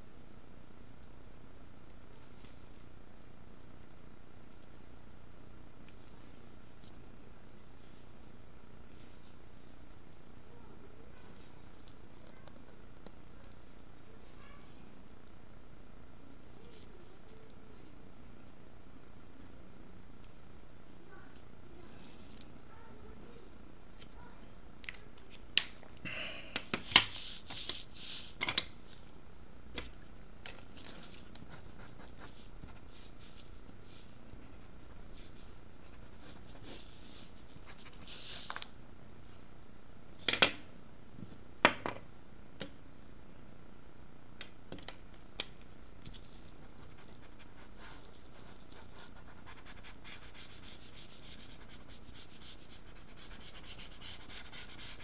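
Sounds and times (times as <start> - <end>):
marker scratching on paper: 30.8 - 38.5, 46.4 - 55.0.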